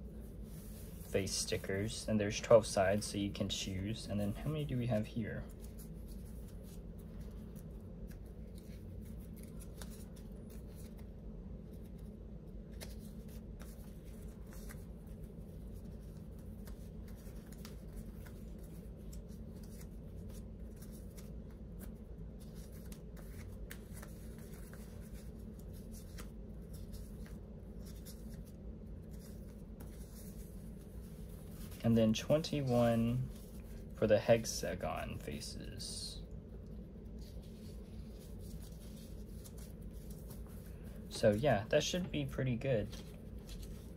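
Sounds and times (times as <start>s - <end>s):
steady low hum: 0.0s - 43.9s
paper sheets flicking and rustling: 5.5s - 11.1s, 11.7s - 33.9s, 42.8s - 43.9s.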